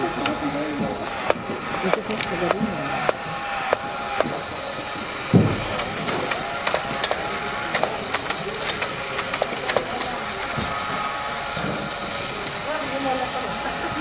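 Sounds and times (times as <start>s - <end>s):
tin mechanism clicks and rattles: 0.0s - 4.5s, 5.7s - 14.0s
small motor whirring: 0.0s - 14.0s
dull thump: 5.3s - 5.8s.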